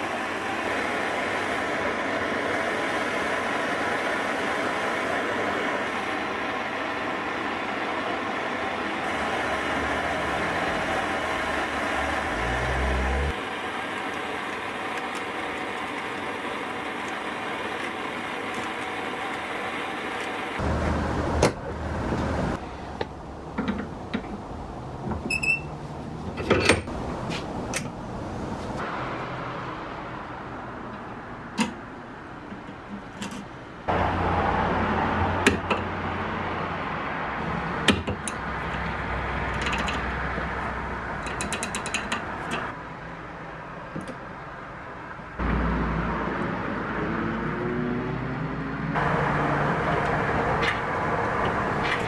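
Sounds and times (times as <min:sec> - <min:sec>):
steady background noise: 0:00.0 - 0:52.0.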